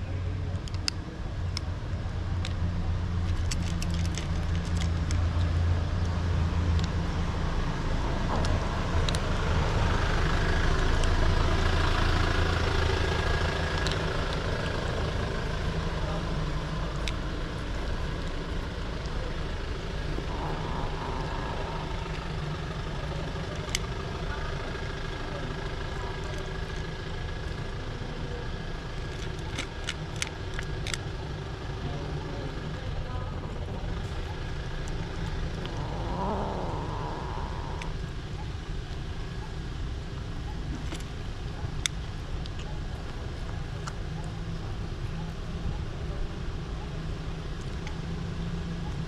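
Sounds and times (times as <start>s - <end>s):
vehicle engine rumble: 0.0s - 49.0s
kitten crunching dry cat food: 3.2s - 5.6s, 29.0s - 31.1s.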